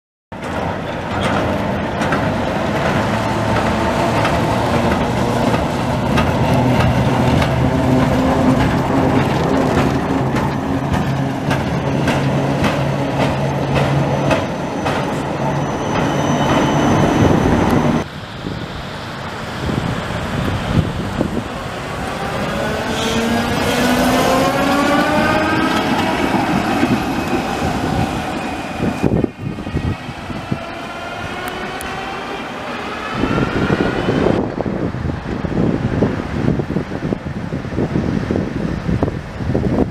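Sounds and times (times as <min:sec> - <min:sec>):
tram motor hum: 0:00.4 - 0:18.1, 0:20.1 - 0:36.4
traction motor whine rising: 0:21.6 - 0:34.5.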